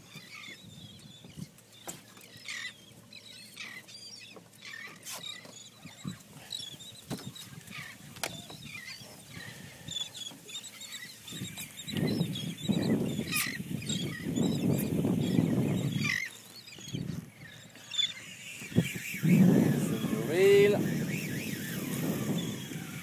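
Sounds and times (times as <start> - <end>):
seabirds squawking: 1.3 - 23.0.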